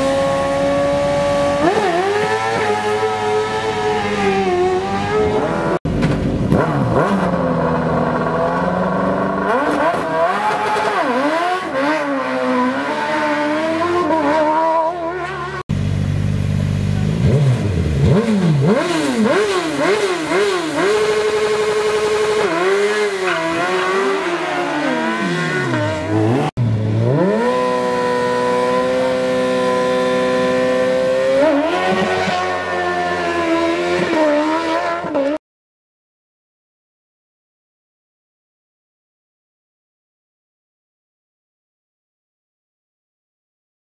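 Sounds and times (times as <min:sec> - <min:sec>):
racing car engine revving: 0:00.0 - 0:05.8, 0:06.4 - 0:15.6, 0:16.7 - 0:35.4.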